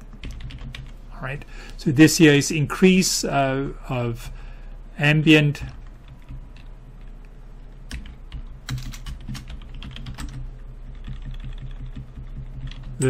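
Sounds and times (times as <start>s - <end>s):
low steady hum: 0.0s - 13.0s
keyboard typing: 0.1s - 1.0s, 7.9s - 13.0s.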